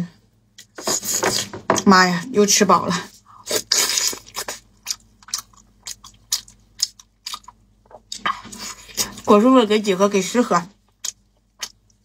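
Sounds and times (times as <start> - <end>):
person biting and chewing: 3.4 - 9.2.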